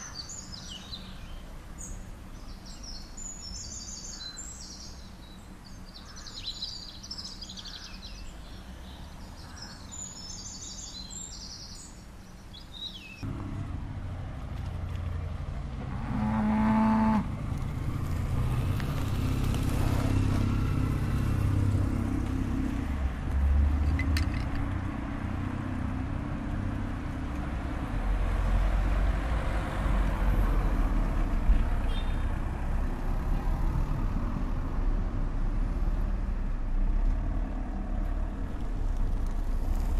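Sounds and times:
birds chirping: 0.0s - 13.6s, 31.4s - 32.4s
road traffic rumble: 0.0s - 39.9s.

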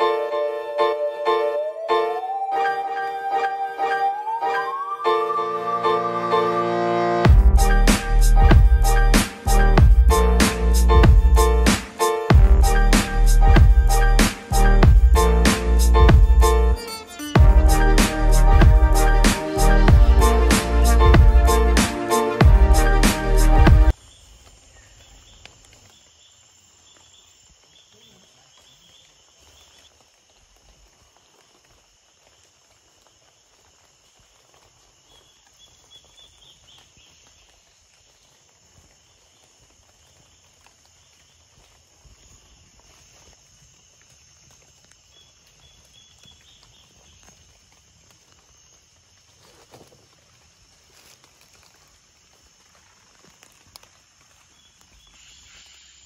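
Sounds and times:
high insect hum: 23.9s - 56.0s.

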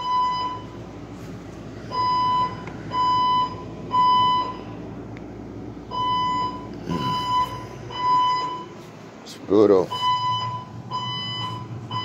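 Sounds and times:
fire alarm beeping: 0.0s - 0.9s, 1.8s - 4.8s, 5.9s - 8.8s, 9.9s - 12.0s.

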